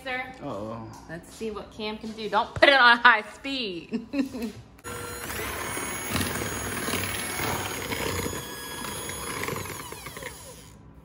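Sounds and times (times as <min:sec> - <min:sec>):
electric hand mixer whirring: 0:04.8 - 0:10.8.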